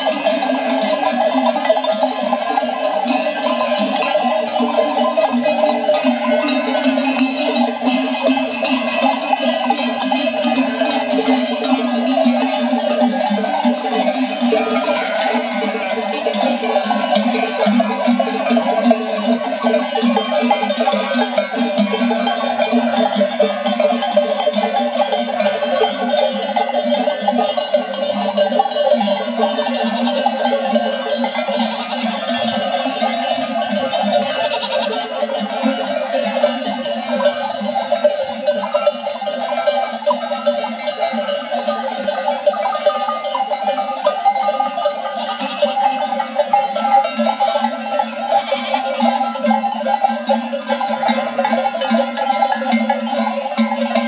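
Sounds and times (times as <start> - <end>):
sheep bells clanking: 0.0 - 54.0.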